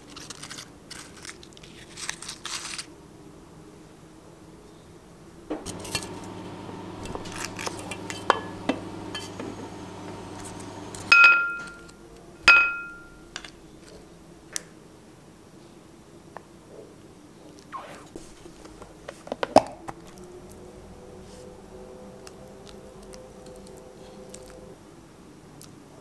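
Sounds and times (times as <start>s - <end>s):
chopsticks tapping dishes: 7.2s - 9.5s.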